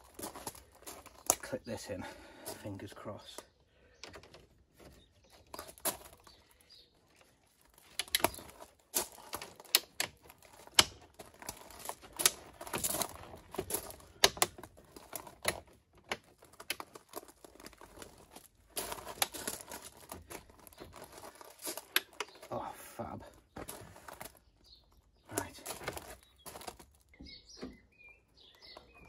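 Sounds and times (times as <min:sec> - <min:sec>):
plastic rubbing and rattling: 0:03.9 - 0:22.5, 0:23.4 - 0:29.0
plastic clips clicking and snapping: 0:07.7 - 0:22.5.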